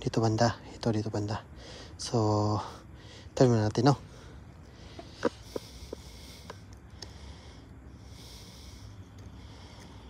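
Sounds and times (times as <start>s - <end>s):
person breathing close: 1.5s - 2.0s, 2.6s - 3.4s, 4.0s - 10.0s.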